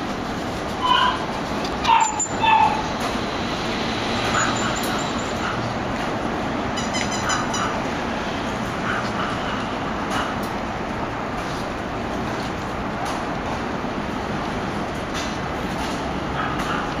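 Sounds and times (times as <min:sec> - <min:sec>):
steady background noise: 0:00.0 - 0:17.0
puppy yelping and whining: 0:00.8 - 0:02.9.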